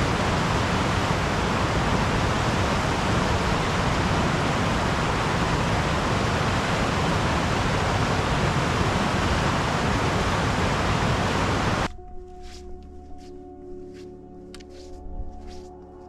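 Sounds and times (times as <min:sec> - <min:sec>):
river rushing over boulders: 0:00.0 - 0:11.9
faint steady tones: 0:00.0 - 0:12.1.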